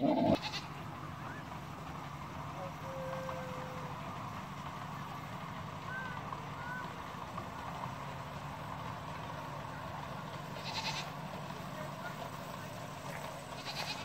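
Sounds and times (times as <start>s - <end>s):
low engine hum idling: 0.0s - 14.0s.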